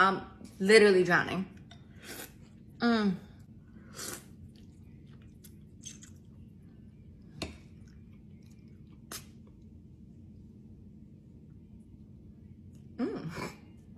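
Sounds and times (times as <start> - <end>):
person chewing noodles: 3.9 - 6.6, 7.8 - 9.8.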